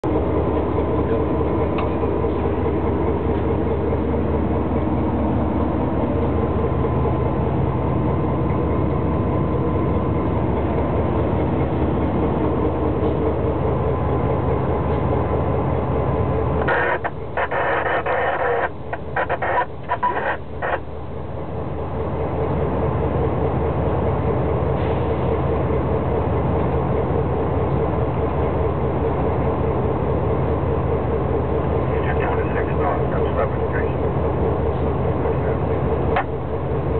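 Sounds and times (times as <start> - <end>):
locomotive engine drone: 0.0 - 36.9
noisy burst: 16.6 - 20.8.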